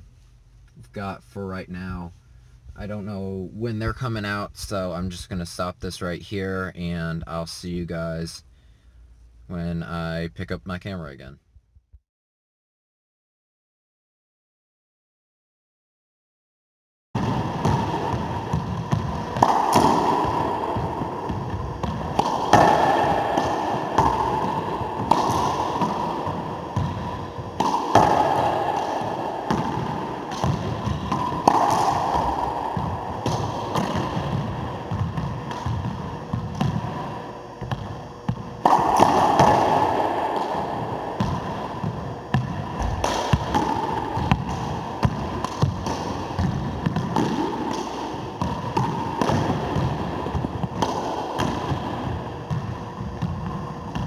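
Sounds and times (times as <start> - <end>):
racquetball hits echoing: 17.2 - 54.0.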